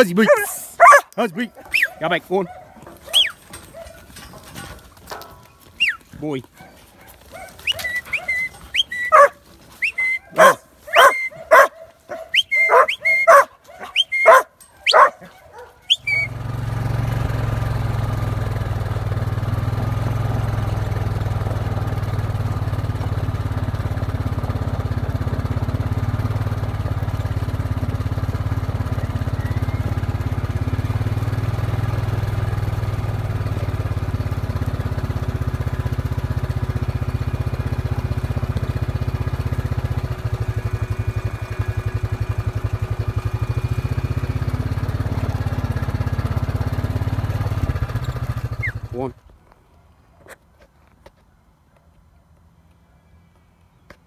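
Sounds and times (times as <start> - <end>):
dog barking: 0.2 - 4.1, 6.6 - 8.5, 9.1 - 9.4, 10.2 - 16.1
low vehicle engine drone: 7.6 - 49.1.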